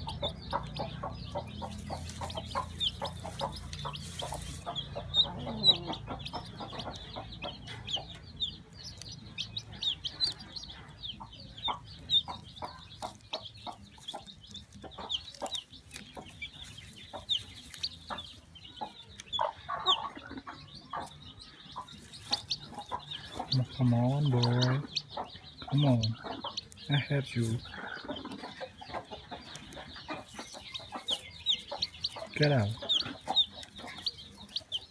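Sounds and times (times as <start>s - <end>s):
chick peeping: 0.0s - 34.9s.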